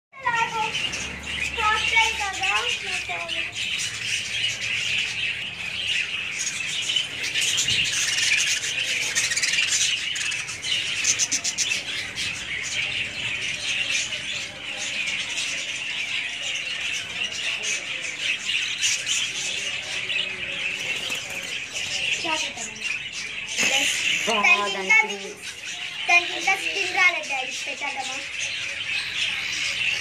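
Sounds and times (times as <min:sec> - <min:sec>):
parrots chattering and squawking: 0:00.2 - 0:30.0.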